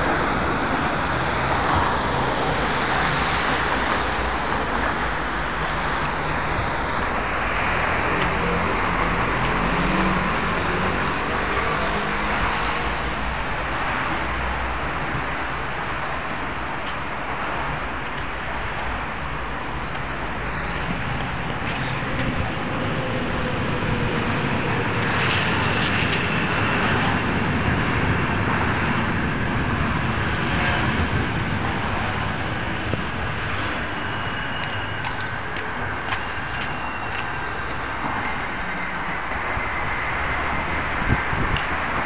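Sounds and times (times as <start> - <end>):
vehicles rumbling: 0.0 - 42.0
high-pitched squealing tones: 30.5 - 41.5.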